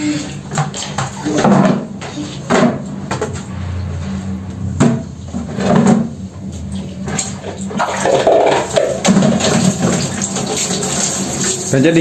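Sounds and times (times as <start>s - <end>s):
plastic buckets clattering on tiles: 0.0s - 3.4s, 4.8s - 6.2s, 7.0s - 11.8s.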